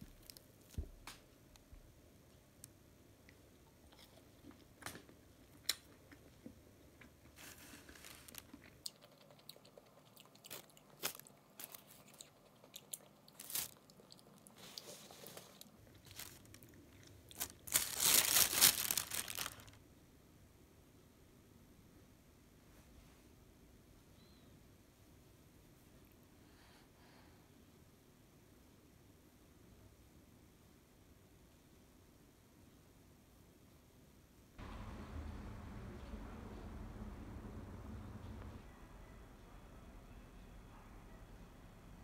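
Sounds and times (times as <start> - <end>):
crusty bread tearing and chewing: 3.9 - 19.8
plastic bag crinkling: 7.4 - 8.8, 13.3 - 14.0, 14.7 - 19.8.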